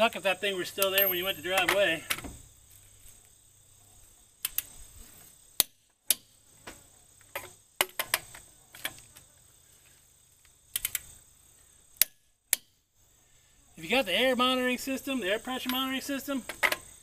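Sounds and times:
torque wrench clicks: 4.4s - 4.7s, 10.4s - 11.2s, 12.0s - 12.7s.

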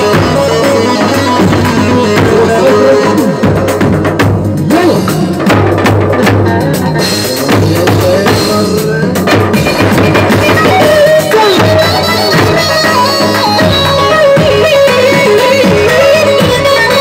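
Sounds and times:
drum beat: 0.0s - 17.0s
electronic keyboard melody: 9.6s - 17.0s.

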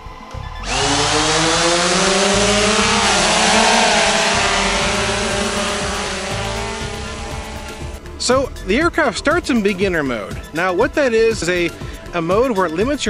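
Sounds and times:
drone propellers whirring: 0.6s - 8.1s.

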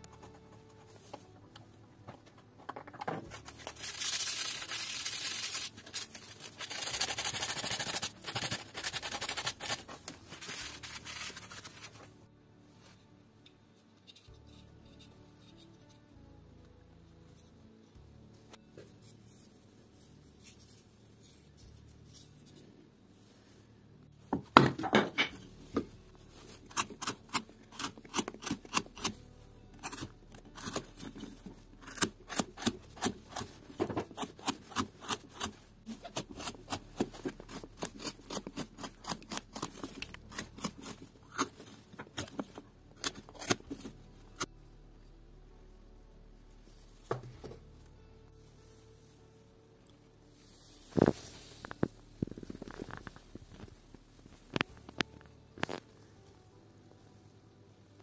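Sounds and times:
carving gouge cutting wood: 26.7s - 29.2s, 29.8s - 42.4s.

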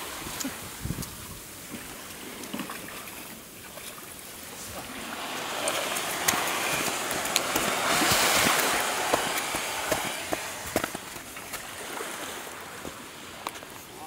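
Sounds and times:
canoe hull scraping over sand: 4.3s - 13.9s.

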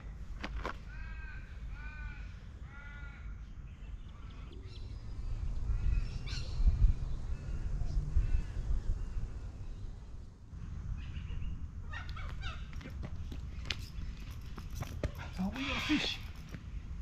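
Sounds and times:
raven cawing: 0.8s - 3.5s, 15.5s - 16.3s.

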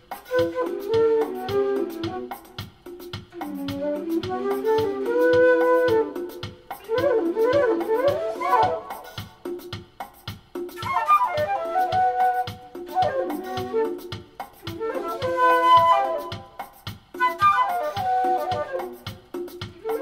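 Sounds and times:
flute melody with harmonizer: 0.0s - 9.8s, 10.6s - 20.0s.

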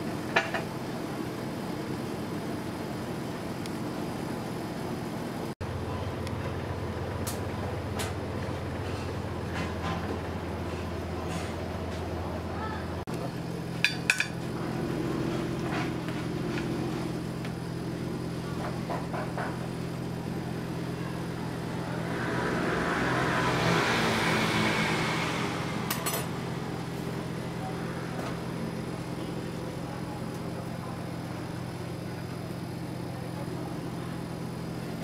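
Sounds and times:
low machine hum: 0.0s - 35.0s
dishes clinking: 13.8s - 14.4s
rushing noise: 21.5s - 26.5s.

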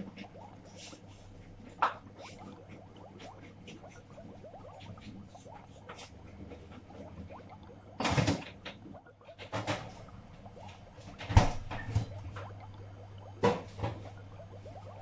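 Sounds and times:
low steady hum: 0.0s - 15.0s
knocks rustles and thumps: 8.0s - 12.6s
refrigerator doors opening and shutting: 11.1s - 12.1s.

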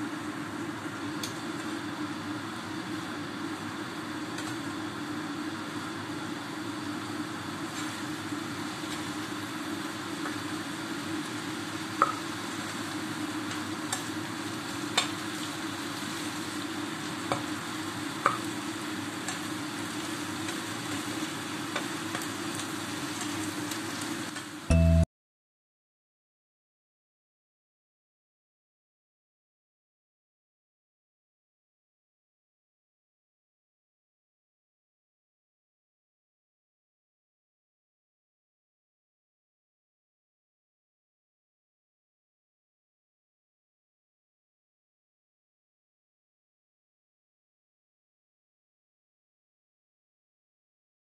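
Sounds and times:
vegetables sizzling in a wok: 0.0s - 25.0s.

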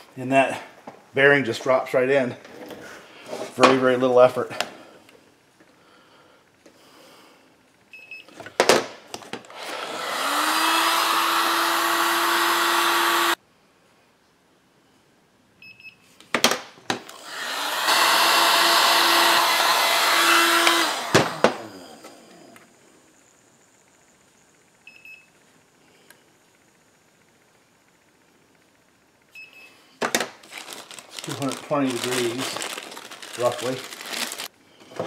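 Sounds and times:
heat gun fan whine: 3.2s - 13.4s, 16.9s - 35.0s.

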